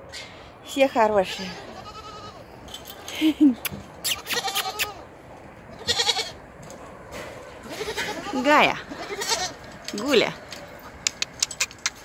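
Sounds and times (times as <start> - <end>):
goat kids bleating: 1.2 - 2.5, 4.0 - 5.1, 5.8 - 6.4, 7.6 - 9.6
sharp clicks: 11.0 - 12.0.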